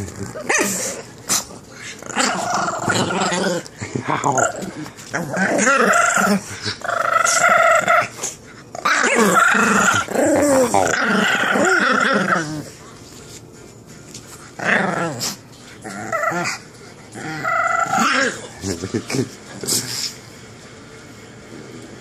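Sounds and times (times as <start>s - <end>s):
dog growling: 0.0s - 12.8s, 14.6s - 18.6s.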